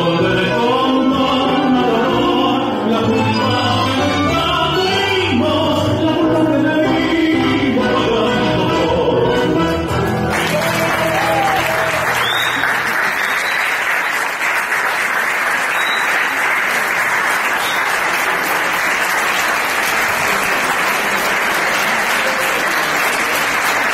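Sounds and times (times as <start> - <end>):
audience applauding: 9.9 - 23.9.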